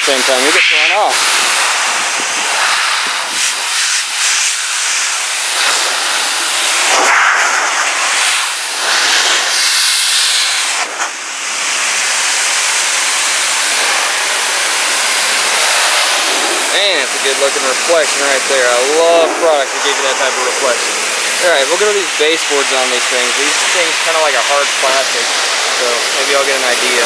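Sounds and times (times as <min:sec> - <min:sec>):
blower dryer rushing air: 0:00.0 - 0:27.0.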